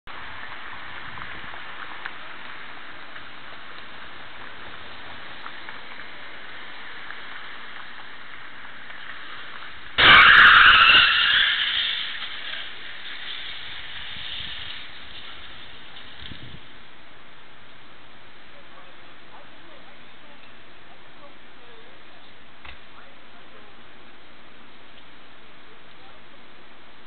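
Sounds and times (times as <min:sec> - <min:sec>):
street traffic hiss: 0:00.1 - 0:27.0
loud high-pitched noise: 0:10.0 - 0:12.7.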